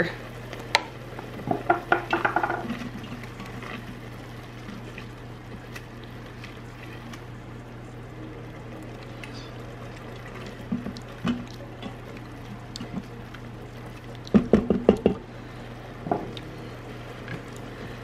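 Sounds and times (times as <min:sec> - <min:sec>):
low hum: 0:00.0 - 0:18.0
soft bubbling simmer: 0:00.0 - 0:18.0
utensil knocking and scraping pot: 0:00.8 - 0:03.8.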